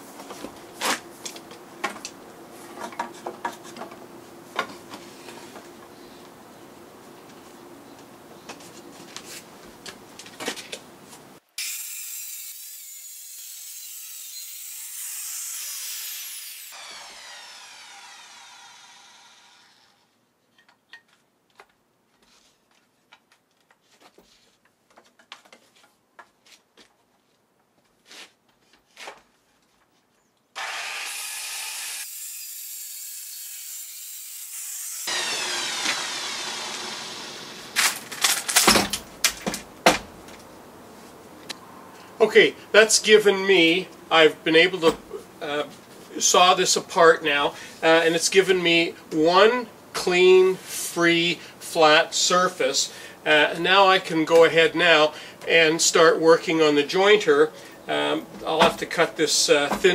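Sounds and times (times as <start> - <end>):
circular saw cutting board: 11.6 - 20.1, 30.6 - 38.0.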